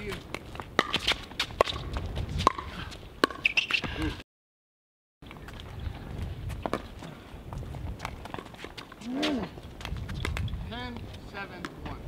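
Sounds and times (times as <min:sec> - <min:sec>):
shoes on hard court: 0:00.0 - 0:04.0, 0:06.4 - 0:12.0
low wind rumble: 0:01.5 - 0:03.2, 0:05.3 - 0:08.3, 0:09.0 - 0:12.0.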